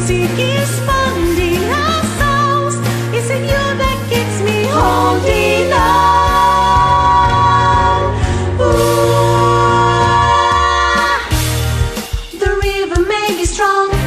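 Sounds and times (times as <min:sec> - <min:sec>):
woman singing pop song: 0:00.0 - 0:11.4, 0:12.4 - 0:14.0
backing track with bass: 0:00.0 - 0:13.1.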